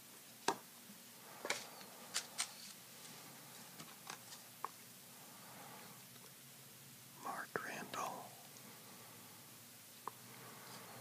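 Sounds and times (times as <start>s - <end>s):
card edges clicking and snapping: 1.5s - 2.8s.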